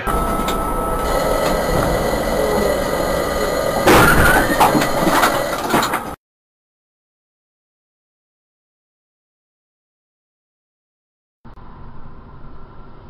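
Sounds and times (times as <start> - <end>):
tyre screech: 0.0 - 6.2
vehicle road rumble: 0.0 - 6.2.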